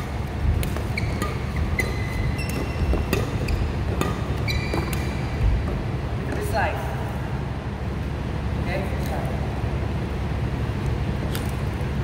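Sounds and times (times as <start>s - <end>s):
racket hitting shuttlecock: 0.0s - 6.5s
shoes squeaking on court: 0.0s - 6.6s
low hum of hall: 0.0s - 12.0s.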